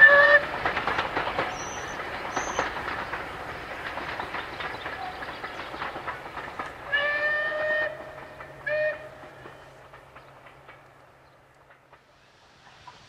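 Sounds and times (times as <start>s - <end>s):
steam locomotive whistle: 0.0s - 0.6s, 6.9s - 9.4s
train wheels clacking on rails: 0.0s - 13.0s.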